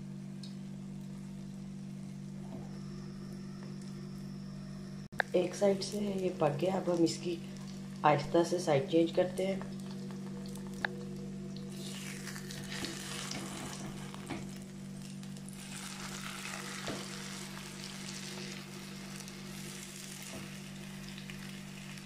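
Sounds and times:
low hum: 0.0s - 22.0s
egg sizzling in oil: 11.7s - 22.0s.

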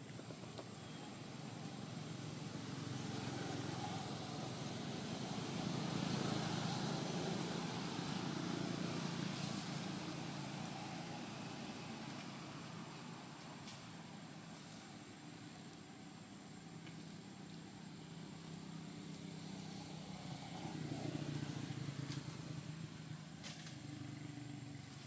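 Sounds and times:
vehicle engine rumble: 0.0s - 25.0s.

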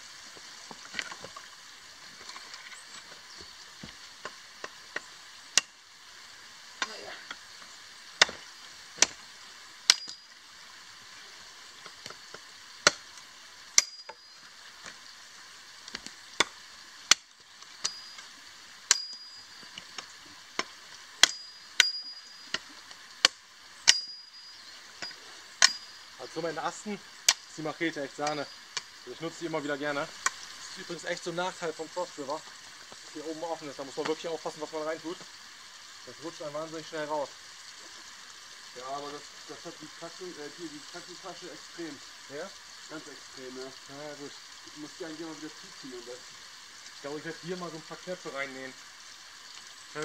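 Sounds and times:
machete chopping wood: 12.8s - 13.0s.

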